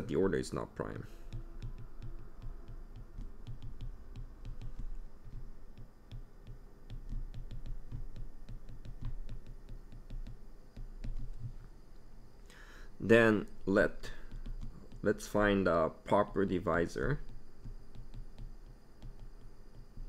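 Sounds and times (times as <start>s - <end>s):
stylus tapping on glass screen: 1.2s - 11.7s, 13.5s - 15.2s, 17.2s - 20.0s.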